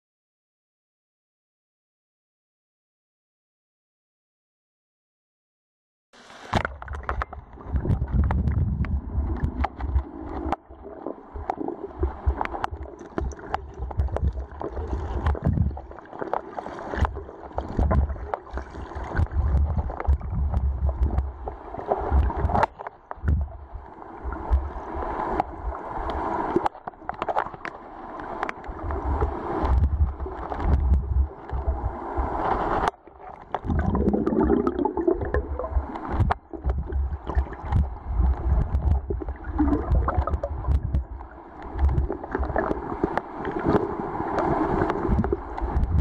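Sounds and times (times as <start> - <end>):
underwater creek gurgling: 6.2 - 46.0
low rumble: 7.2 - 10.2, 35.2 - 42.6.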